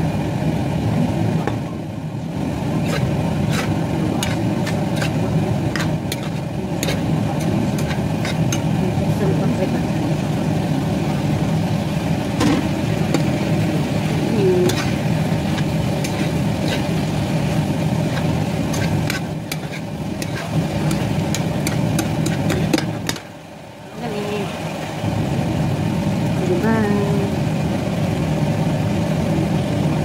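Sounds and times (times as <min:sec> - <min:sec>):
steady low hum: 0:00.0 - 0:30.0
metal spoon scraping frying pan: 0:02.8 - 0:08.8, 0:14.3 - 0:23.3.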